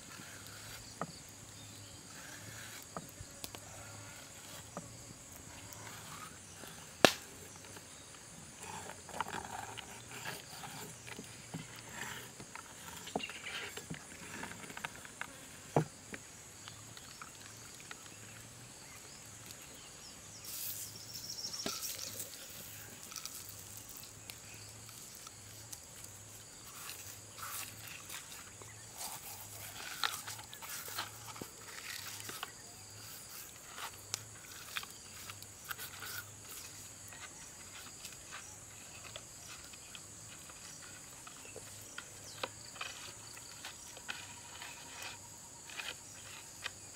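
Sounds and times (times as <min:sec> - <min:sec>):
faint high insect drone: 0:00.0 - 0:46.9
salt pouring hiss: 0:20.3 - 0:31.7
seasoning rustling and pattering: 0:20.4 - 0:45.2.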